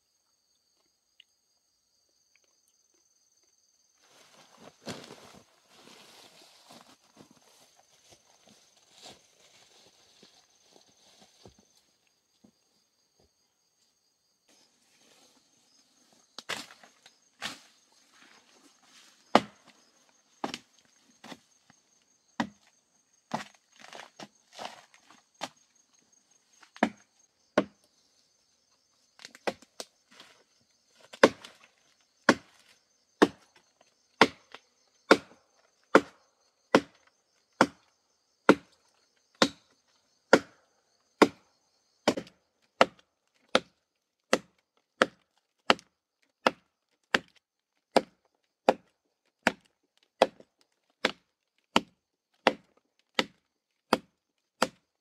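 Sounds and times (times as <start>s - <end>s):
machete chopping into log: 31.1s - 31.6s.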